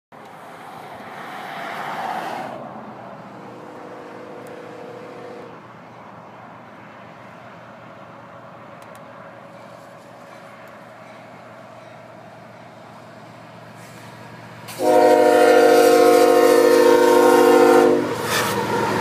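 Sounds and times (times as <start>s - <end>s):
low rumble of approaching train: 0.2s - 19.0s
distant locomotive horn: 3.4s - 5.6s, 14.7s - 19.0s.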